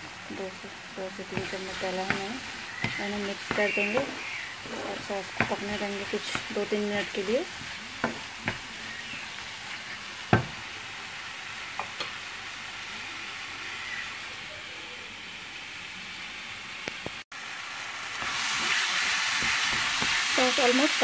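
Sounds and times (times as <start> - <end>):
sauce sizzling in a frying pan: 0.0 - 21.0
wooden spatula knocking on pan: 1.3 - 4.4, 5.2 - 8.7, 10.3 - 10.6.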